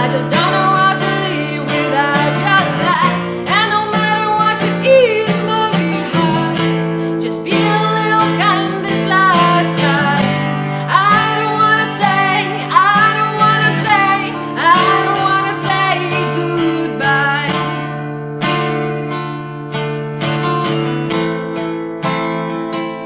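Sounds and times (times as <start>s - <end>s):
woman singing: 0.0s - 18.1s
strummed acoustic guitar: 0.0s - 23.0s.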